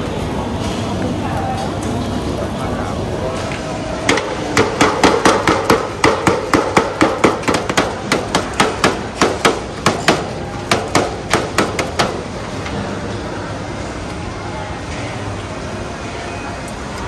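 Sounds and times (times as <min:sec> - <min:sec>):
pounding on plastic cutting board: 0:04.1 - 0:12.2.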